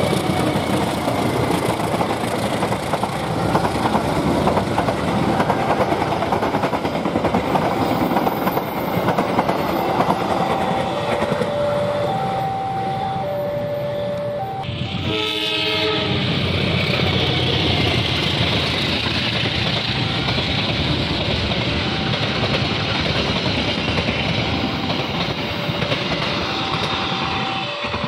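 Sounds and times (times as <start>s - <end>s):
train wheels on rails: 0.0s - 13.3s, 14.0s - 28.0s
level crossing alarm ringing: 9.7s - 15.4s
train horn blast: 14.8s - 16.6s, 26.6s - 28.0s.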